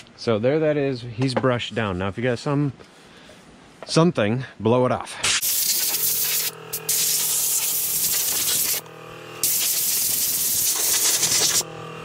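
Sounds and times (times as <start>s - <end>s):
air blow gun hissing: 5.2s - 8.8s, 9.4s - 11.6s.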